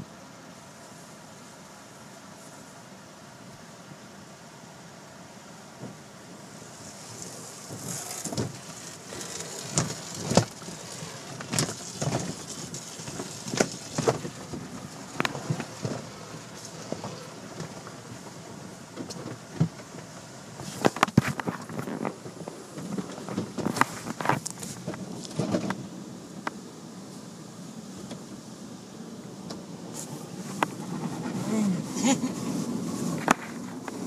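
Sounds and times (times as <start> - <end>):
water spray pattering on car: 6.6 - 25.7.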